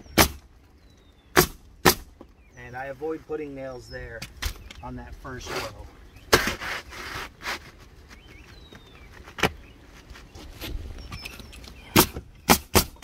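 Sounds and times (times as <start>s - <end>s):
nail gun shots: 0.2s - 0.4s, 1.3s - 2.1s, 11.9s - 13.0s.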